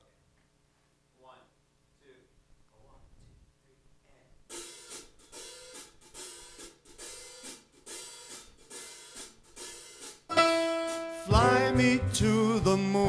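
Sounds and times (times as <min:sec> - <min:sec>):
cymbal strokes: 0:04.5 - 0:11.3
jazz band playing: 0:08.7 - 0:13.0.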